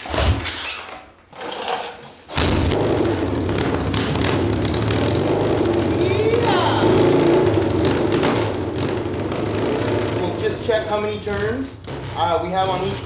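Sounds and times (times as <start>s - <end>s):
motorcycle kick-start: 2.4s - 6.0s, 7.0s - 10.7s
motorcycle engine running: 2.4s - 12.2s.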